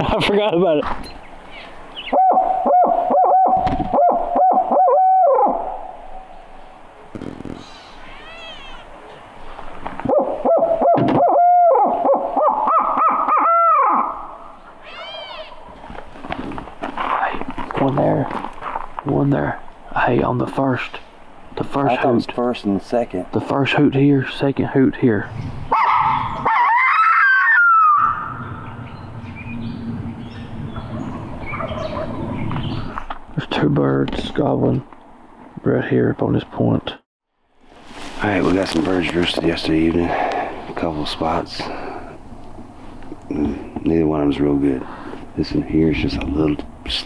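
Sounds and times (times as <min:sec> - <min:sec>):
owl call hoots: 0:01.6 - 0:06.4, 0:10.1 - 0:15.6, 0:25.7 - 0:28.7.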